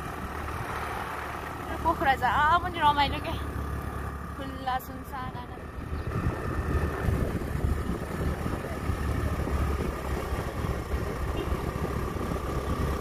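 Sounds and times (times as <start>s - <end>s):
motorbike engine rumble: 0.0s - 13.0s
wind buffeting microphone: 5.4s - 13.0s.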